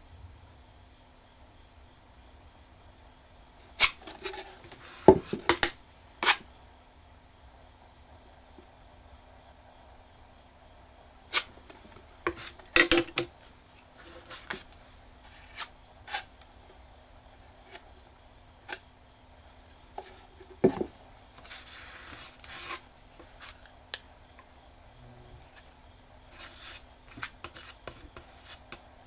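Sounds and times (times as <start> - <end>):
scraping rub: 6.2 - 6.4, 13.4 - 16.3, 21.4 - 23.7, 25.4 - 28.8.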